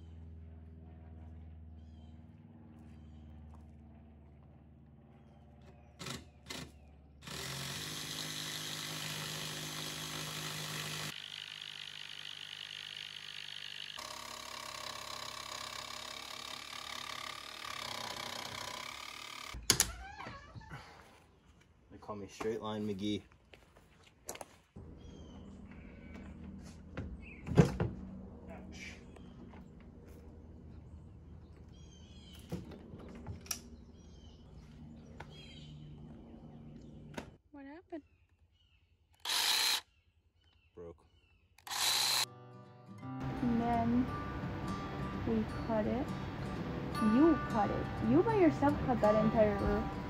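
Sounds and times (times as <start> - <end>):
songbirds chirping: 0.0 - 7.2, 20.9 - 41.6, 43.2 - 50.0
cordless drill running: 7.2 - 19.6, 39.2 - 39.8, 41.6 - 42.3.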